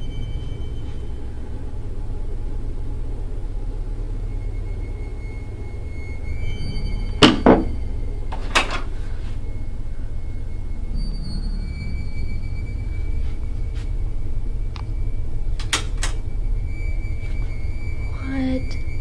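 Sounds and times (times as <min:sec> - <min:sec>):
steady low hum: 0:00.0 - 0:19.0
knocking on closet door: 0:07.2 - 0:07.7.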